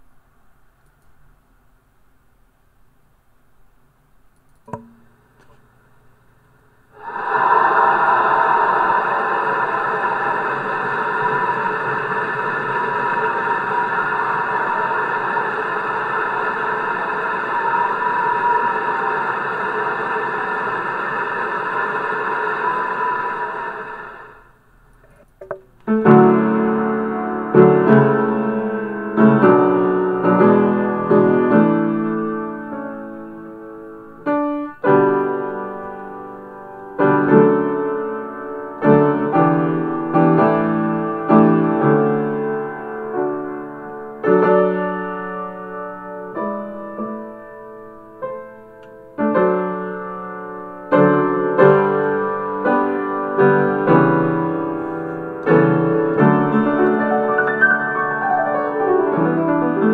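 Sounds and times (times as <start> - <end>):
solo piano music: 25.9 - 59.9.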